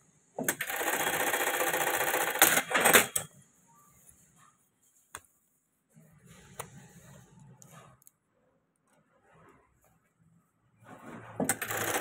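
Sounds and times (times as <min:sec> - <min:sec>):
sewing machine stitching: 0:11.4 - 0:12.0
sewing machine clacks: 0:11.5 - 0:12.0.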